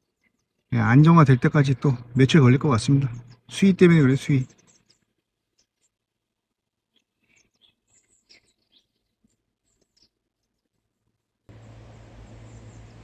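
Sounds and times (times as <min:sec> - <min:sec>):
faint bird chirps: 0:00.0 - 0:13.0
steady hiss with low hum: 0:11.5 - 0:13.0.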